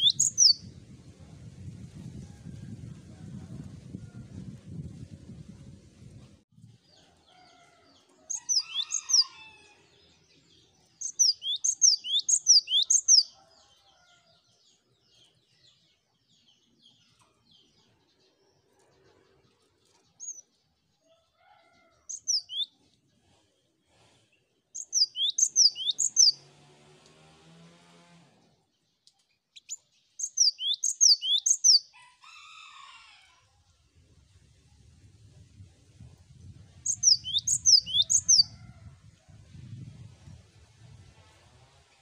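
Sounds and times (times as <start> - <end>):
bird singing high whistles: 24.8 - 26.3.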